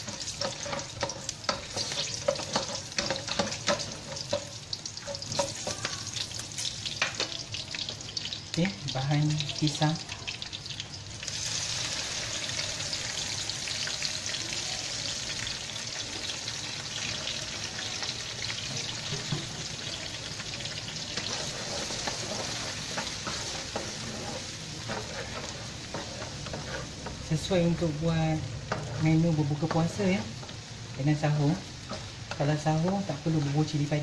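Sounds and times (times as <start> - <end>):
spatula scraping wok: 0.0 - 8.2, 18.4 - 34.0
spice paste sizzling in oil: 0.0 - 34.0.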